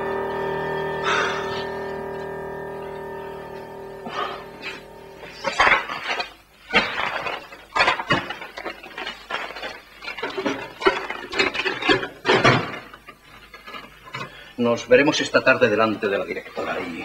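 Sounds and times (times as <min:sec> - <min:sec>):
papers rustling: 0:05.4 - 0:14.4.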